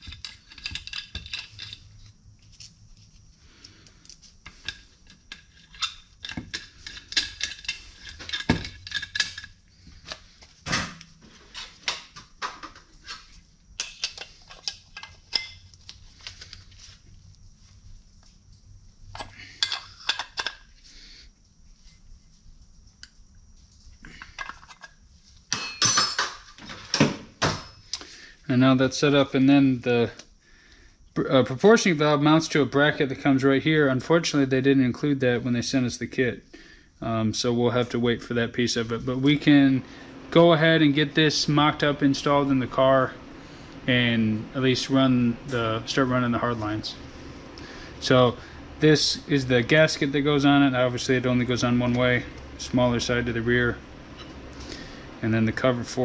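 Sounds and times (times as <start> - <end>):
metal parts and tools clinking: 0.0 - 2.8, 4.0 - 10.2, 13.8 - 16.5, 24.2 - 27.0.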